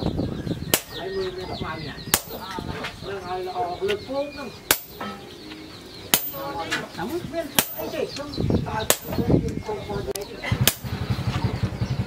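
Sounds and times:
sledgehammer striking chisel on metal: 0:00.7 - 0:01.0, 0:02.1 - 0:02.5, 0:04.7 - 0:05.3, 0:06.1 - 0:06.7, 0:07.6 - 0:08.0, 0:08.8 - 0:09.2, 0:10.6 - 0:10.9.

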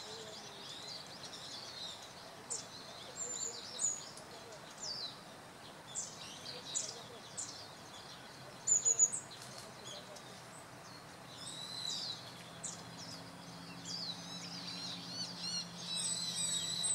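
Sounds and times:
birds chirping: 0:00.0 - 0:16.9
shrill high bird calls: 0:11.4 - 0:16.9.

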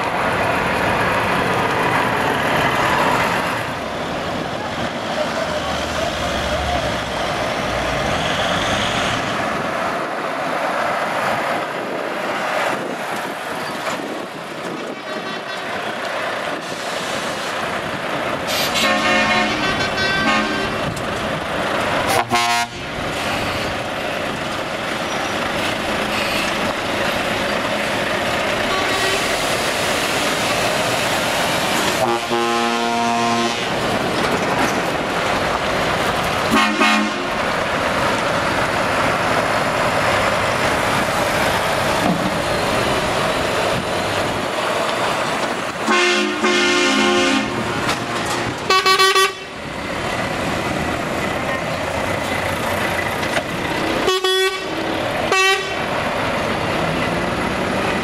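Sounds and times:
truck diesel engines running: 0:00.0 - 0:58.0
truck horn blasts: 0:15.0 - 0:15.8, 0:18.5 - 0:20.9, 0:22.1 - 0:22.9, 0:32.0 - 0:33.7, 0:36.5 - 0:37.4, 0:45.9 - 0:47.6, 0:48.7 - 0:49.5, 0:54.0 - 0:55.8.

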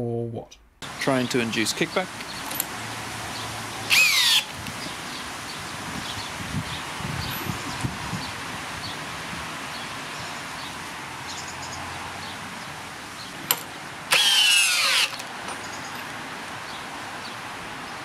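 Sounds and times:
cordless drill motor whining: 0:03.9 - 0:04.5, 0:14.1 - 0:15.3.

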